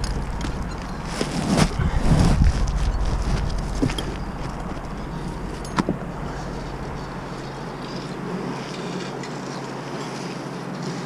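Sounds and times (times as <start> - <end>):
truck engine rumbling: 0.0 - 9.3.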